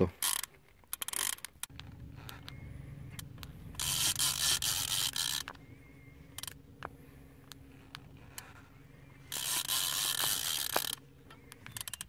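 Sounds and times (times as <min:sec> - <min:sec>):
scattered clicks: 0:00.2 - 0:05.6, 0:09.3 - 0:12.0
fishing reel drag rasping buzz: 0:00.2 - 0:12.0
steady low hum: 0:01.6 - 0:12.0.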